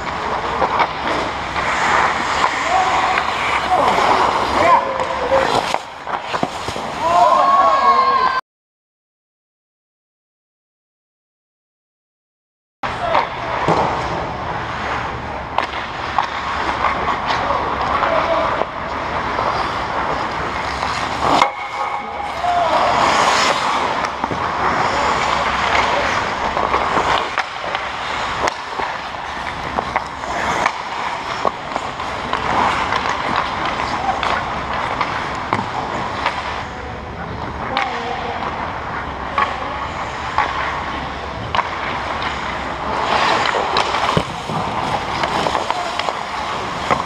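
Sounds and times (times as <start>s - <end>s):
skater stopping hard: 0.0s - 7.6s, 12.9s - 36.7s
hockey sticks and puck clacking: 0.0s - 8.3s, 12.9s - 47.0s
skate blades scraping ice: 0.0s - 8.3s, 12.9s - 47.0s.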